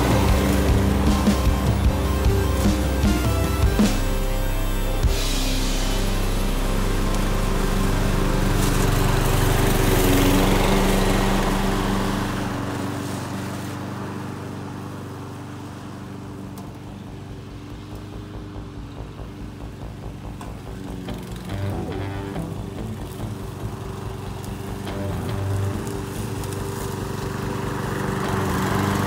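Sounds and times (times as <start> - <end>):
mower engine running: 0.0 - 29.0.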